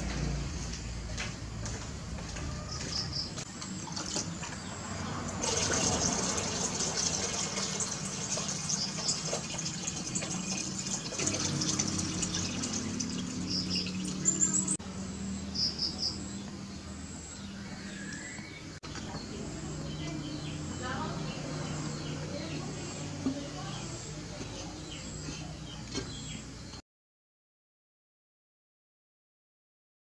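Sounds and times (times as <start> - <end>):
water pouring into tank: 5.3 - 14.8.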